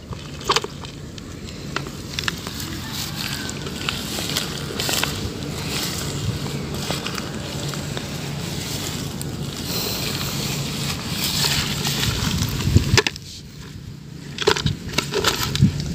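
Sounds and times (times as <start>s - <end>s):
low steady hum: 0.0s - 15.9s
wind buffeting microphone: 2.6s - 10.7s, 11.7s - 14.0s, 14.6s - 15.9s.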